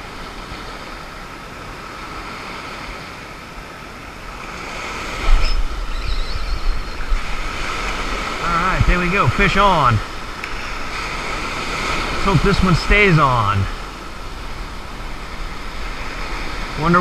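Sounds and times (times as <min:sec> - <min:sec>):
ocean surf breaking: 0:00.0 - 0:17.0
wind buffeting microphone: 0:04.5 - 0:12.8.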